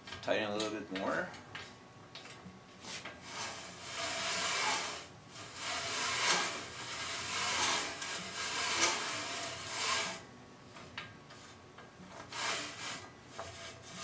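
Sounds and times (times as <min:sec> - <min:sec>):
cutter scraping metal: 0:03.2 - 0:10.2, 0:12.2 - 0:14.0.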